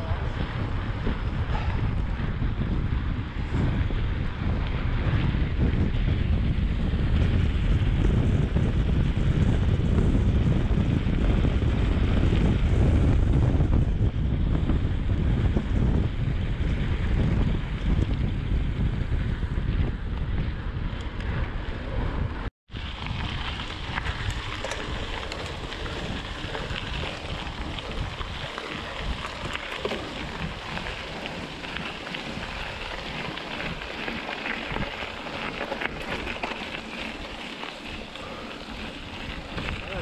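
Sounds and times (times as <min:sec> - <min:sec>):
wind buffeting microphone: 0:00.0 - 0:40.0
tyres crackling over gravel: 0:22.7 - 0:40.0.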